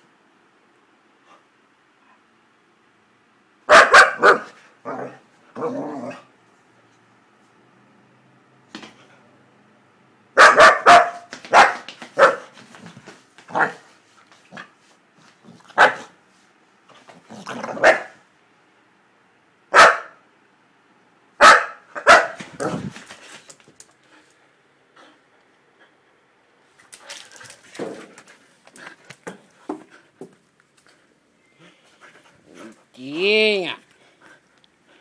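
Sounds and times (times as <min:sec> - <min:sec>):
dog barking: 0:03.7 - 0:05.2, 0:10.4 - 0:12.5, 0:15.8 - 0:16.1, 0:17.8 - 0:18.2, 0:19.7 - 0:20.2, 0:21.4 - 0:22.4.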